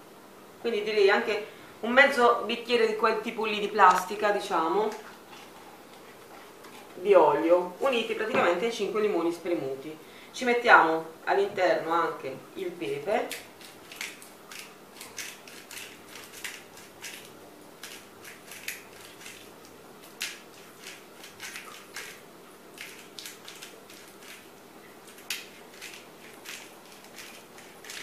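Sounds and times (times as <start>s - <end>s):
pepper mill grinding: 13.3s - 22.2s, 22.8s - 24.5s, 25.1s - 28.0s.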